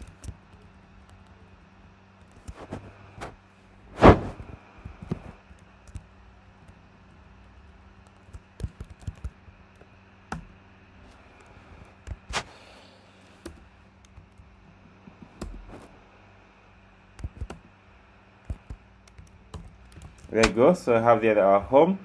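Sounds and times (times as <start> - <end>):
faint low hum: 0.0 - 22.0
keyboard typing: 7.5 - 10.4, 17.2 - 17.7, 18.4 - 20.5.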